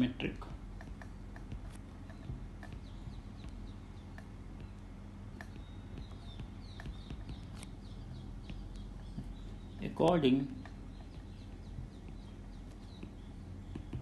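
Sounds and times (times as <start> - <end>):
low electrical hum: 0.0 - 14.0
stylus tapping on tablet: 0.4 - 14.0.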